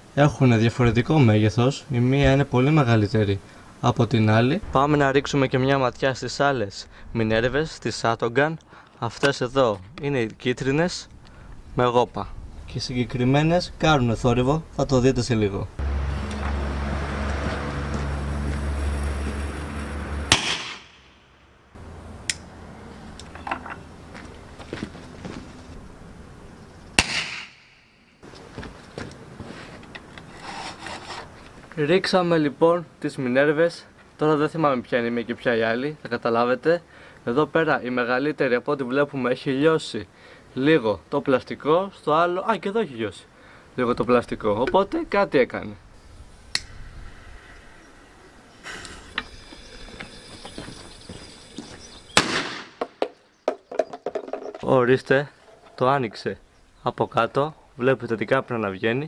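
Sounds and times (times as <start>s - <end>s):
firecracker bang in plastic bottle: 20.3s - 21.0s, 27.0s - 27.6s, 52.2s - 52.9s
bottles knocking and clicking: 52.9s - 54.7s.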